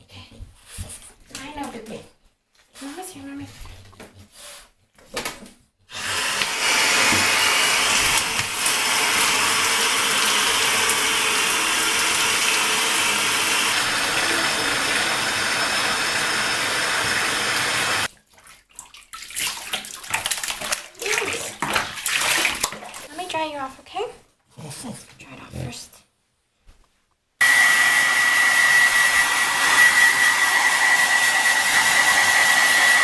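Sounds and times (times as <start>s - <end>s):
shower water running into bathtub: 5.9s - 23.4s.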